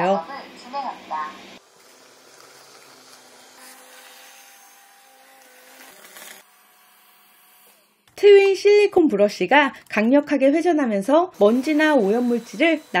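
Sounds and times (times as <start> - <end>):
robot vacuum humming: 1.1 - 7.9, 11.4 - 13.0.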